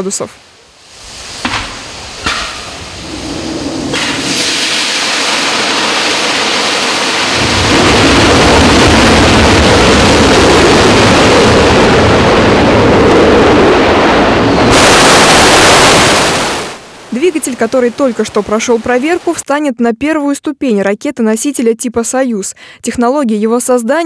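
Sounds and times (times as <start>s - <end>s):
rocket engine roaring: 1.8s - 17.2s.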